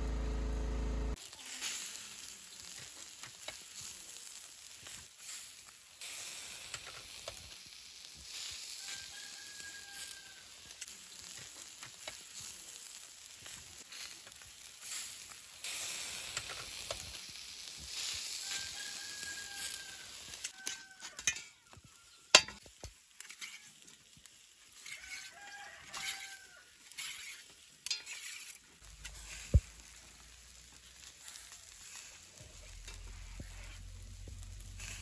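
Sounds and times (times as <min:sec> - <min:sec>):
meat sizzling over charcoal grill: 0:01.1 - 0:35.0
rooster crowing: 0:08.7 - 0:10.6, 0:18.3 - 0:22.4, 0:24.8 - 0:26.8.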